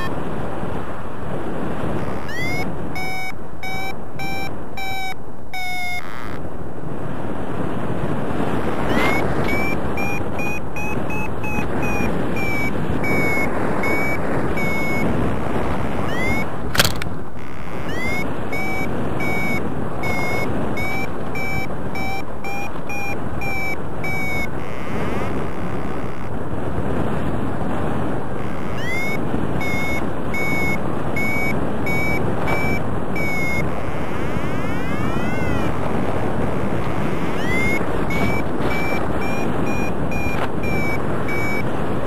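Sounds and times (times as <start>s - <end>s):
wind on microphone: 0.0s - 42.0s
variometer short beeps: 2.0s - 6.4s, 8.8s - 26.4s, 28.4s - 41.7s
sharp click: 16.7s - 17.1s.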